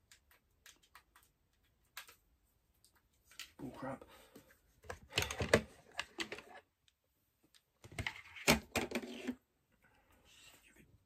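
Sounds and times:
plastic parts clicking and knocking: 0:00.0 - 0:03.6, 0:04.8 - 0:06.7, 0:07.4 - 0:09.4.

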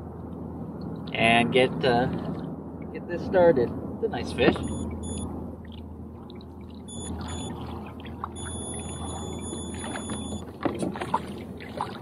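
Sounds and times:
low hum with water noise: 0:00.0 - 0:12.0
thin high steady tone: 0:04.6 - 0:05.3, 0:06.9 - 0:07.6, 0:08.4 - 0:10.4.

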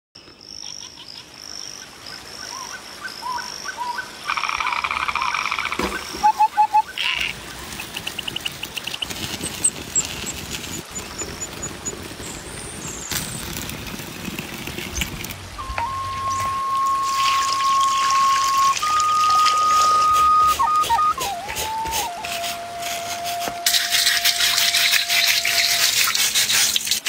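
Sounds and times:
birds chirping: 0:00.2 - 0:13.6, 0:14.8 - 0:23.6
frogs croaking: 0:00.3 - 0:09.1
buzzing trill: 0:15.6 - 0:26.2.

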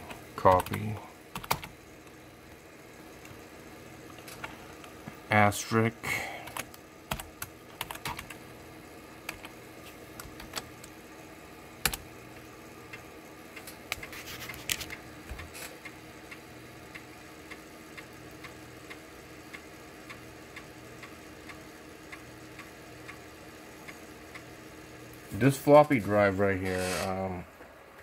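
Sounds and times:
steady low hum: 0:00.0 - 0:28.0
keyboard keys clicking: 0:00.5 - 0:01.7, 0:06.4 - 0:08.4, 0:09.2 - 0:09.6, 0:10.2 - 0:10.9, 0:11.8 - 0:12.0
floppy drive head ticking: 0:06.4 - 0:14.1, 0:14.7 - 0:25.8.

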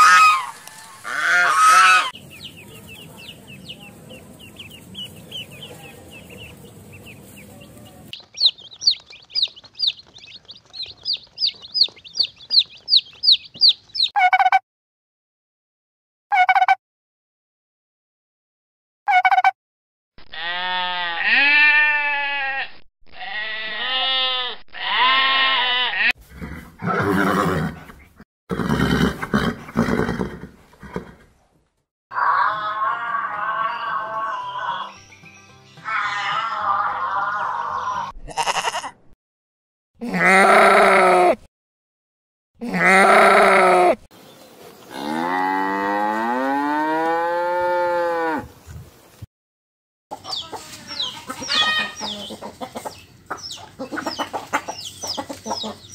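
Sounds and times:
farm animal bleating: 0:00.0 - 0:03.8, 0:04.4 - 0:14.1, 0:20.2 - 0:26.2, 0:32.1 - 0:35.0, 0:35.8 - 0:39.2, 0:40.0 - 0:41.4, 0:42.6 - 0:44.0, 0:50.4 - 0:52.4
cow mooing: 0:40.0 - 0:41.4, 0:42.6 - 0:44.0, 0:44.9 - 0:48.5.

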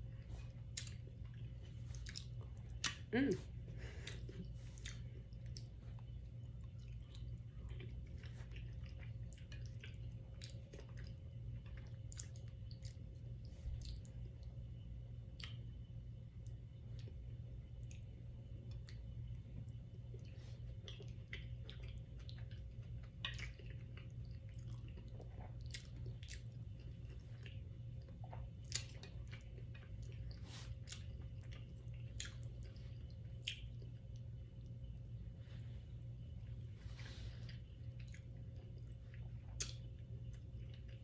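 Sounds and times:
person chewing: 0:00.0 - 0:14.3, 0:15.3 - 0:15.6, 0:18.7 - 0:34.2, 0:37.1 - 0:41.0
soft mouth clicks and smacks: 0:00.4 - 0:03.1, 0:04.0 - 0:14.3, 0:15.3 - 0:15.8, 0:18.7 - 0:34.2, 0:37.5 - 0:41.0.

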